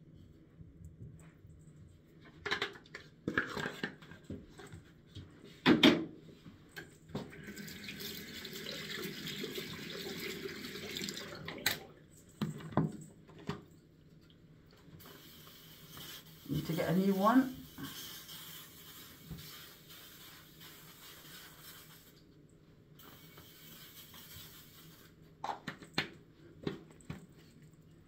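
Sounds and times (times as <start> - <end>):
objects knocking and clattering: 2.2 - 4.6
steady hiss: 15.0 - 22.2.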